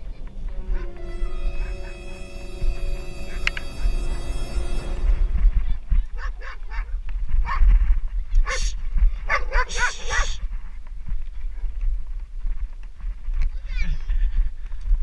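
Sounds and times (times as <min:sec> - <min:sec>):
wind rumble on microphone: 0:04.9 - 0:15.0
dog barking: 0:08.5 - 0:10.4.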